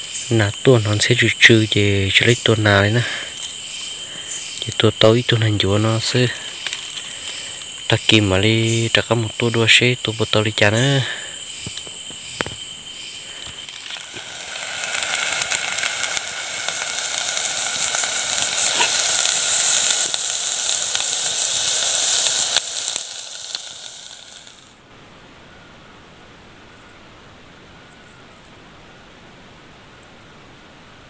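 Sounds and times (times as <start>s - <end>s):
meat sizzling in a pot: 0.0s - 24.8s
soft steady hiss: 0.0s - 31.0s.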